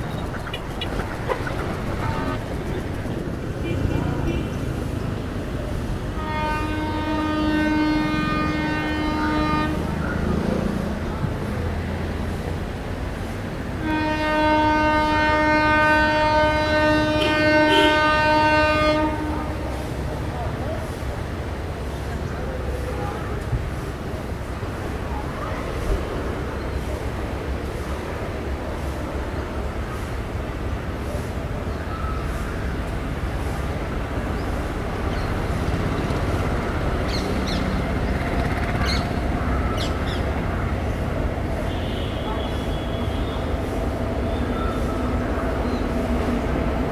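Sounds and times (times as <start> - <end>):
train rumbling: 0.0 - 46.9
locomotive air horn blast: 0.2 - 4.6, 6.1 - 10.0, 13.8 - 20.1, 41.5 - 43.8.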